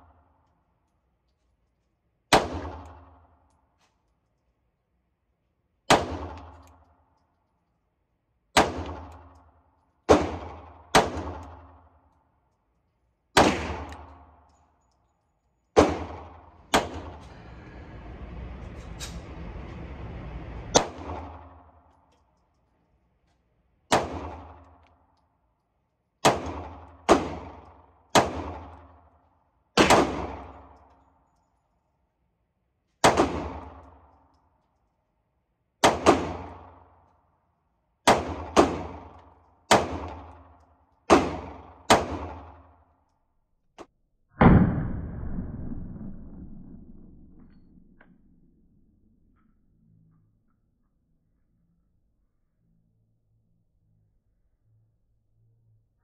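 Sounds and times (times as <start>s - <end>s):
pistol shots with echo: 2.3s - 3.4s, 5.8s - 6.8s, 8.5s - 9.4s, 10.0s - 11.9s, 13.3s - 14.4s, 15.8s - 17.2s, 23.9s - 24.8s, 26.2s - 29.0s, 29.8s - 30.7s, 33.0s - 34.0s, 35.8s - 36.9s, 38.0s - 42.8s
steady noise: 16.5s - 21.5s.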